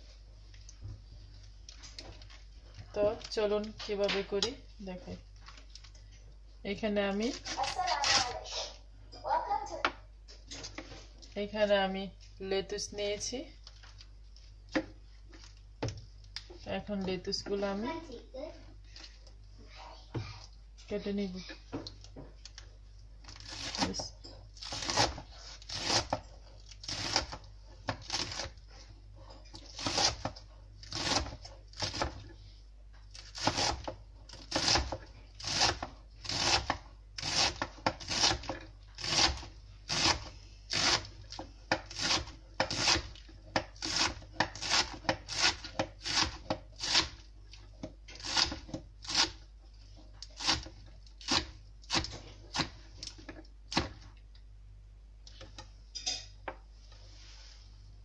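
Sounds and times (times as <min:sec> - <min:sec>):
knife slicing lettuce on board: 0:23.3 - 0:28.6, 0:29.6 - 0:32.2, 0:33.2 - 0:47.2, 0:48.2 - 0:49.4.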